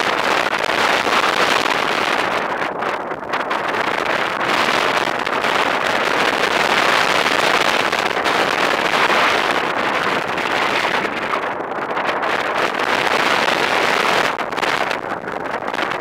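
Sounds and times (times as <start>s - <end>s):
wind rushing over microphone: 0.0s - 16.0s.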